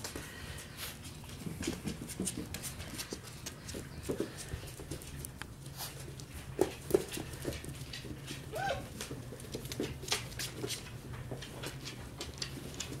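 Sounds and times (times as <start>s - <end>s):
puppy claws clicking on wooden floor: 1.0s - 13.0s
puppy whining: 8.5s - 9.0s.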